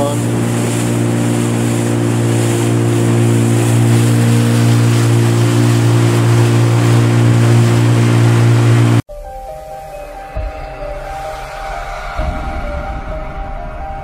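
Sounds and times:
outboard motor running: 0:00.0 - 0:09.0.

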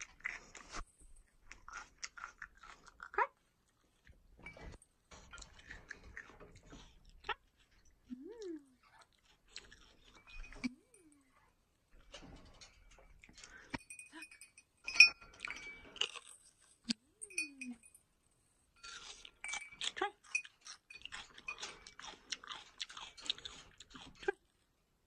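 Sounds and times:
crunchy chewing of pepper: 0:00.0 - 0:04.2, 0:05.2 - 0:11.4, 0:15.4 - 0:17.2, 0:18.8 - 0:24.5.

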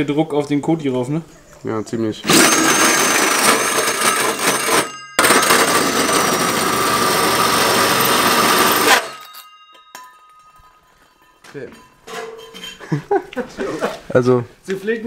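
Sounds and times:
drill with hole saw cutting metal: 0:02.2 - 0:09.4
faint metallic ring: 0:09.0 - 0:13.1.

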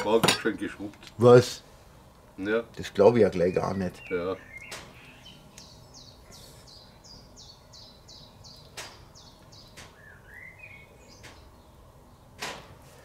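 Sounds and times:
songbird singing: 0:02.6 - 0:12.8.

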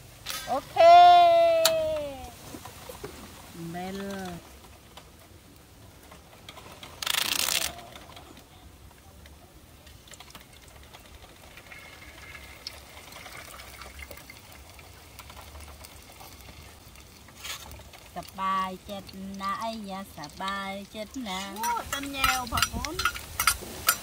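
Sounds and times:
oil trickling and crackling: 0:00.0 - 0:24.0
hot oil hissing: 0:16.6 - 0:24.0.

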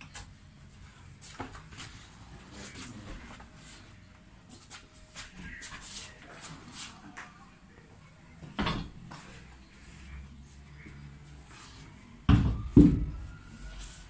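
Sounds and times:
rustling and clicking of objects: 0:00.0 - 0:03.8.

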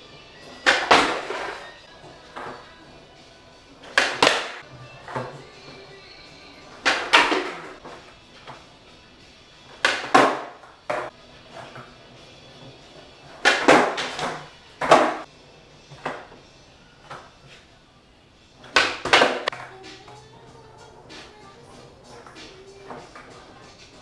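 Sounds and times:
skateboard clacking on concrete: 0:00.4 - 0:02.7, 0:03.8 - 0:05.9, 0:06.7 - 0:08.7, 0:09.7 - 0:15.3, 0:15.9 - 0:16.4, 0:18.6 - 0:20.2, 0:21.0 - 0:24.0
skateboard tail popping: 0:00.4 - 0:02.7, 0:03.8 - 0:05.9, 0:06.7 - 0:08.7, 0:09.7 - 0:15.3, 0:15.9 - 0:16.4, 0:18.6 - 0:20.2, 0:21.1 - 0:24.0.

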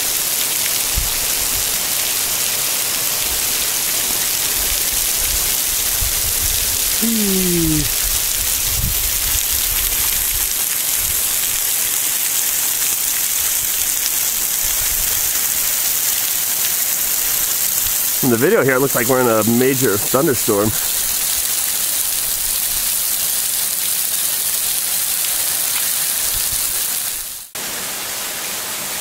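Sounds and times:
water dripping off rock: 0:00.1 - 0:27.2
falling-pitch voice-like tone: 0:07.0 - 0:07.9.

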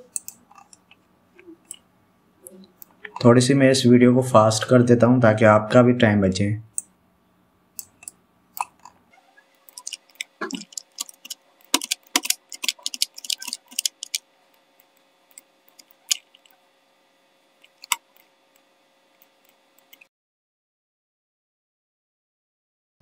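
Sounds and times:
computer mouse and keyboard clicks: 0:00.0 - 0:01.8, 0:07.8 - 0:09.0, 0:09.6 - 0:16.6, 0:17.6 - 0:20.1.

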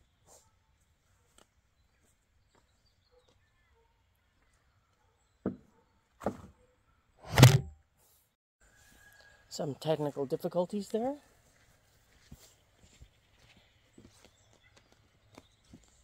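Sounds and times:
heavy thump on camera: 0:07.3 - 0:07.7
sharp knocks: 0:07.3 - 0:07.7.

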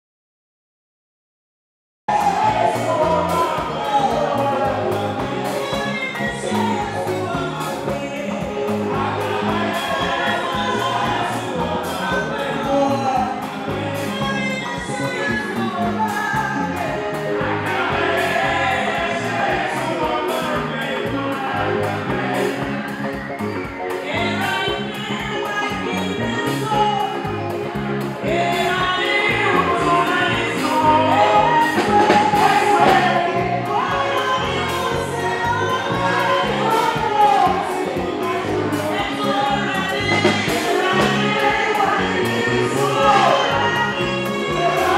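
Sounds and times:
bass line: 0:02.1 - 0:44.9
drum kit beat: 0:02.1 - 0:44.9
group singing: 0:02.1 - 0:44.9.

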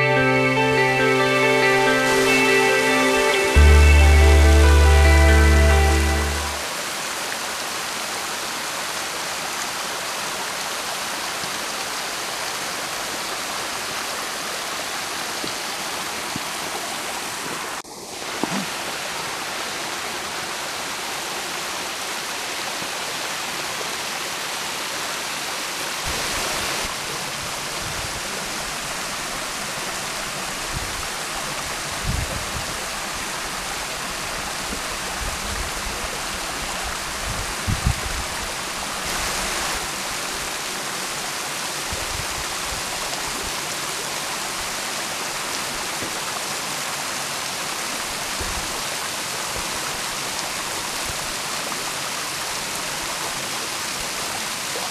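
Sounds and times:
waterfall rushing over rocks: 0:00.0 - 0:54.9.

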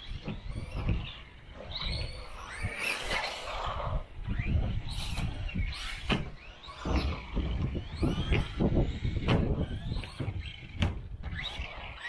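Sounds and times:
toy car hitting ramps: 0:00.0 - 0:12.0.

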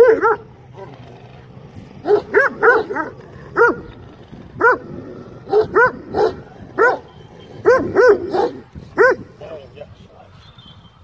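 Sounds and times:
dog barking: 0:00.0 - 0:01.0, 0:02.0 - 0:03.9, 0:04.6 - 0:04.8, 0:05.5 - 0:09.2.

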